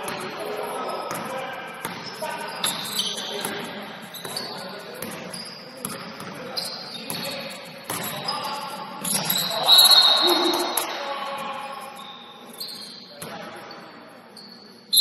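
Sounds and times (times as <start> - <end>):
players' voices: 0.0 - 14.8
basketball bouncing on court: 1.1 - 2.8, 4.2 - 6.4, 7.9 - 8.3
shoe squeaks: 1.8 - 10.8, 11.6 - 15.0.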